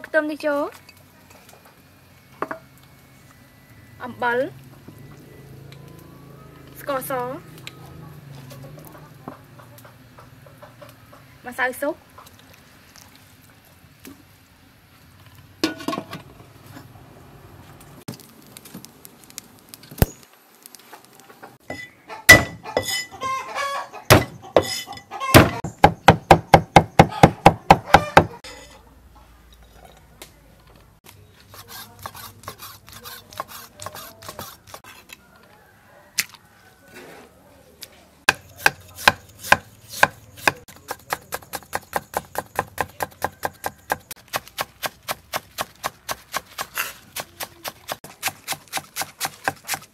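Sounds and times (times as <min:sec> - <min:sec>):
cleaver chopping on wooden board: 0:22.3 - 0:22.9, 0:24.1 - 0:24.7, 0:25.4 - 0:28.3, 0:38.3 - 0:49.9.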